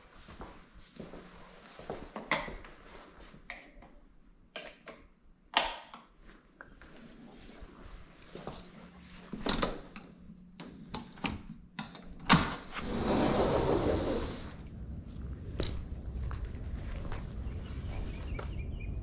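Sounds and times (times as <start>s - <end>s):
handling clicks and knocks: 8.2s - 12.7s.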